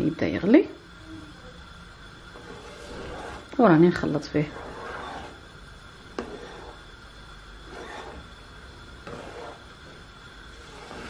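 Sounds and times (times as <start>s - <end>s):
wooden spoon scraping saucepan: 2.3s - 7.0s, 7.6s - 11.0s.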